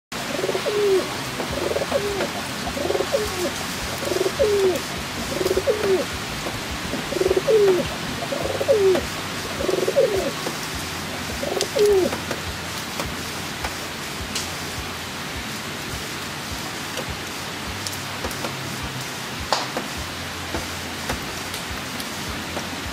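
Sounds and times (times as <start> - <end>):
heavy rain hissing: 0.1 - 22.9
pigeons cooing: 0.2 - 12.3.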